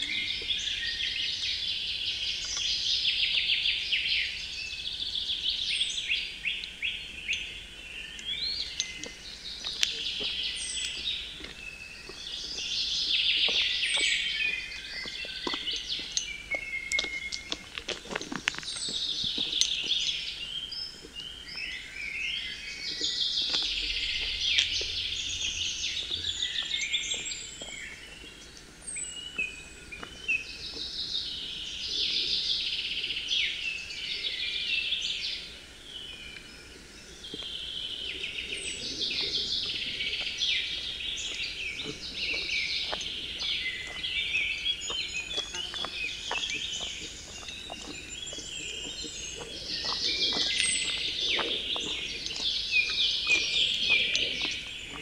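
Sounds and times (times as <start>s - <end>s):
forest birds singing: 0.0s - 55.0s
footsteps crunching on trail: 8.0s - 32.0s, 35.9s - 55.0s.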